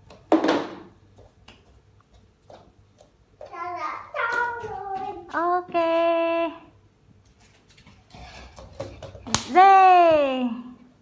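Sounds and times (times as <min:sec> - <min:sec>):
child's high-pitched voice: 0:03.4 - 0:05.7.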